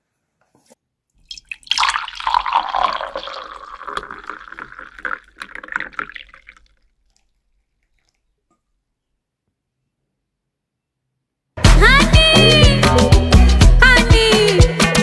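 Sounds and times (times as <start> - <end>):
drink pouring into a mug: 1.3 - 8.2.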